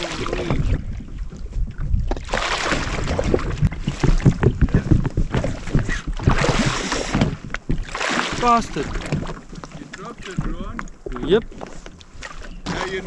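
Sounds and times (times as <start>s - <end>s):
wind gusts on microphone: 0.0s - 9.3s
water slapping against hull: 0.0s - 13.0s.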